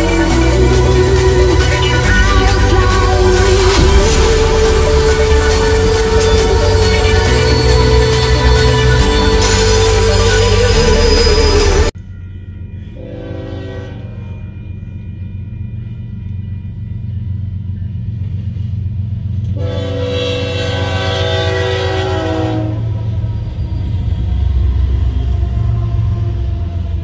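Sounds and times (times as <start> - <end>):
locomotive air horn: 0.0 - 11.9, 13.0 - 14.4, 19.5 - 23.1
low rumble of locomotive engines: 0.0 - 27.0.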